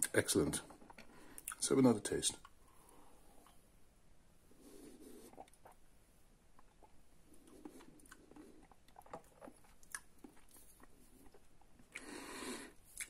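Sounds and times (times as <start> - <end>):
person sipping coffee: 4.6 - 5.8
short breath: 12.0 - 12.8.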